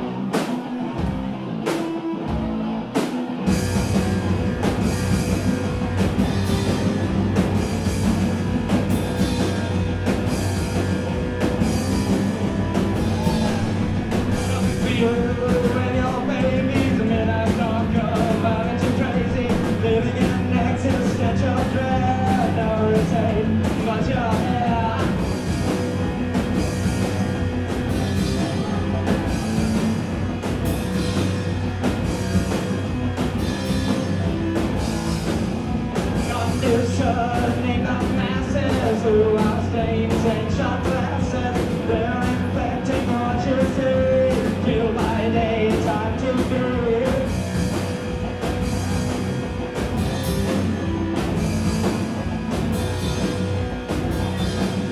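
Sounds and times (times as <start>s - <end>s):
distorted electric guitar: 0.0s - 54.9s
drum kit with cymbals: 0.0s - 54.9s.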